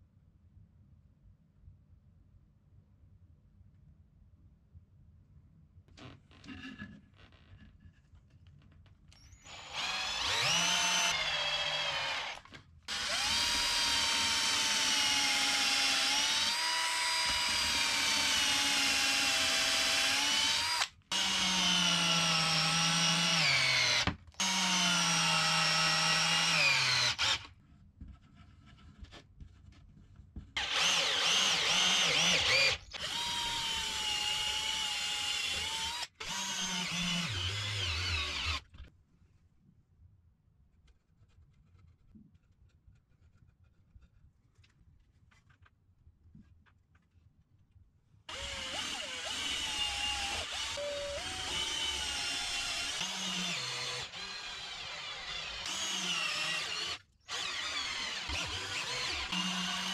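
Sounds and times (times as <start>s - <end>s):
electric drill running: 9.5s - 27.5s, 30.6s - 38.6s, 48.3s - 59.9s.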